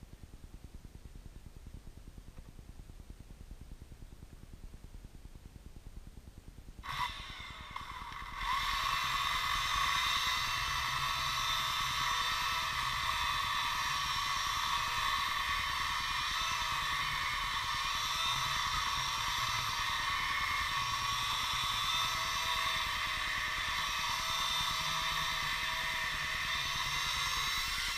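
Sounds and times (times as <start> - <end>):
chainsaw running at high revs: 6.8 - 27.9.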